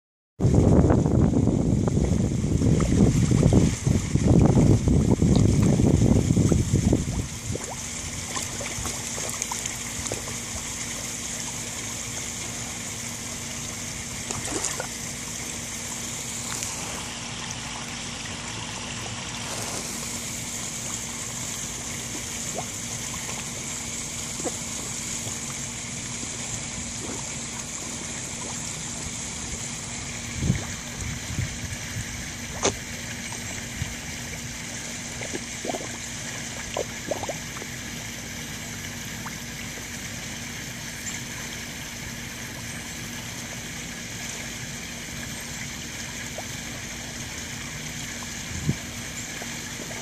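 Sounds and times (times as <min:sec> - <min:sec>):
faint steady hum: 0:00.4 - 0:50.0
waterfall splashing into pond: 0:00.5 - 0:50.0
fish splashing at water surface: 0:05.3 - 0:40.8.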